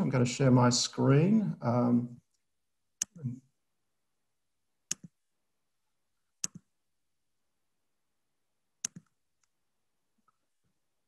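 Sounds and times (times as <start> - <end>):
computer mouse clicks: 3.0 - 3.3, 4.9 - 5.2, 6.4 - 6.7, 8.8 - 9.5.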